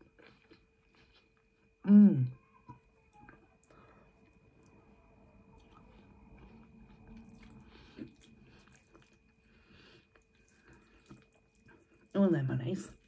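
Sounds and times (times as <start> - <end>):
faint chewing: 0.0 - 1.8, 2.4 - 13.0.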